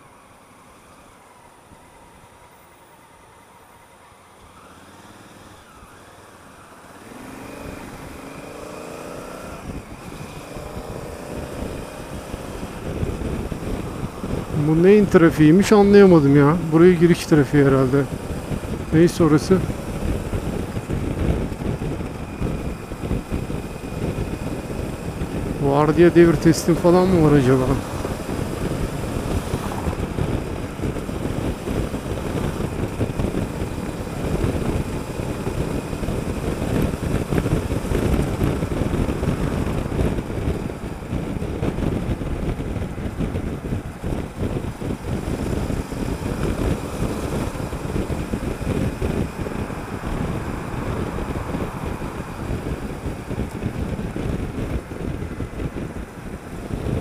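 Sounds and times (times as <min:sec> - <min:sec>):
motorcycle engine running: 0:04.7 - 0:57.0
wind buffeting microphone: 0:06.9 - 0:57.0.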